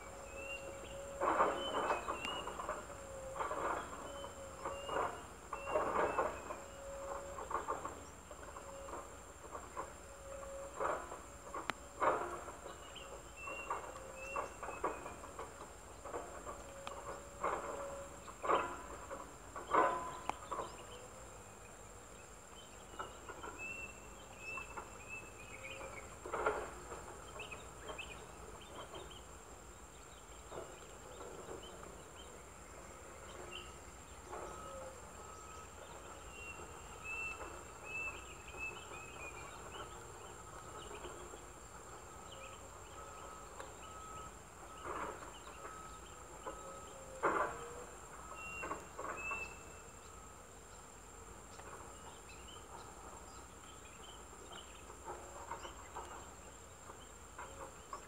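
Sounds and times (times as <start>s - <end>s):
insect drone: 0.0s - 58.0s
bird chirps: 22.5s - 47.1s, 48.2s - 50.2s.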